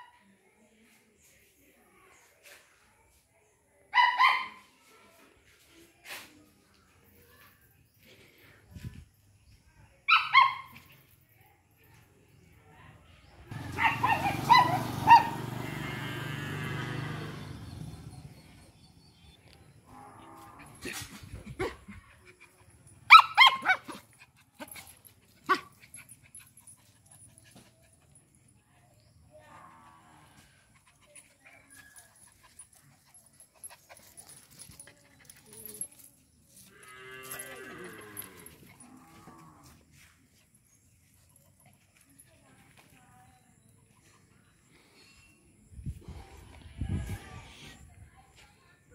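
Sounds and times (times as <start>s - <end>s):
dog barking: 13.5s - 15.5s, 23.1s - 24.0s.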